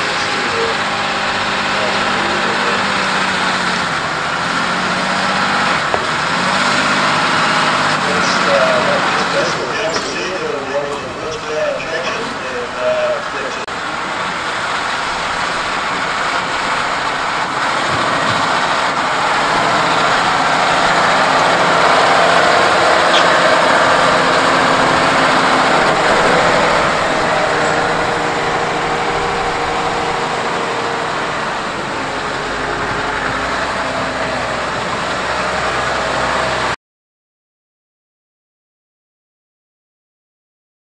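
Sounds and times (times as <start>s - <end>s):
tractor diesel engine under load: 0.0s - 36.8s.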